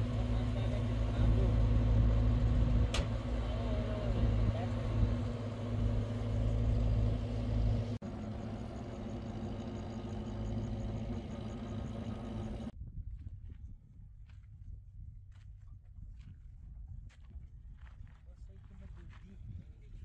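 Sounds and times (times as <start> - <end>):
road noise: 0.0 - 12.7
vehicle engine running: 0.0 - 12.8.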